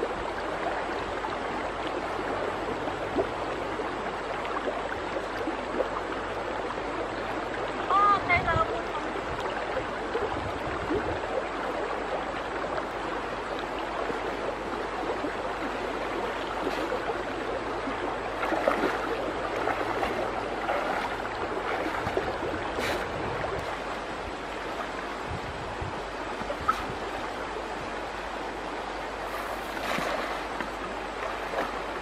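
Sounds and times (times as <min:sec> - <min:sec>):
river water flowing: 0:00.0 - 0:32.0
splash of wading: 0:15.0 - 0:24.1, 0:29.2 - 0:32.0.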